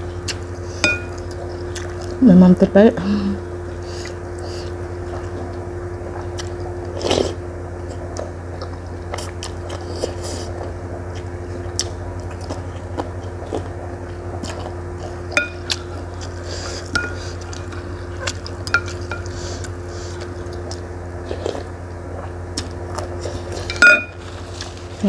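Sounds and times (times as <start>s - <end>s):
steady low hum: 0.0s - 25.0s
utensils clinking on ceramic bowl: 23.6s - 24.2s.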